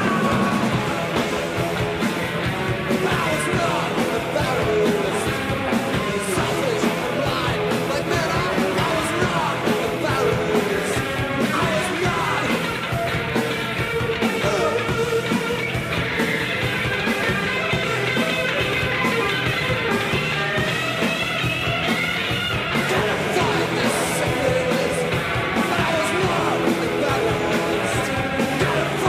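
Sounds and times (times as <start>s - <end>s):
person singing: 0.0s - 1.4s, 2.8s - 12.8s, 14.2s - 15.4s, 22.7s - 29.0s
drums: 0.0s - 29.0s
electric guitar: 0.0s - 29.0s
rock band playing: 0.0s - 29.0s.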